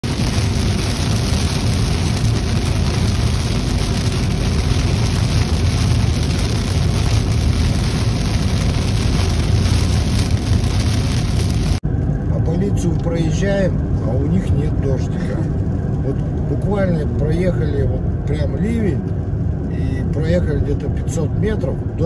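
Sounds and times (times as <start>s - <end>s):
heavy rain on car roof: 0.0s - 11.8s
tyre noise on wet road: 0.0s - 11.8s.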